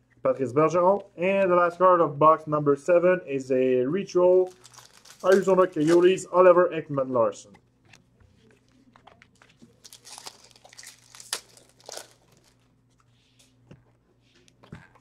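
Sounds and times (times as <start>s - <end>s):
card wrappers crinkling and rustling: 4.3s - 6.2s, 8.4s - 13.6s.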